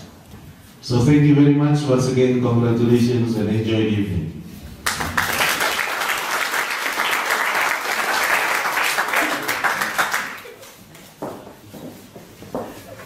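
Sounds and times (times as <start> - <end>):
audience applauding: 4.8 - 10.8.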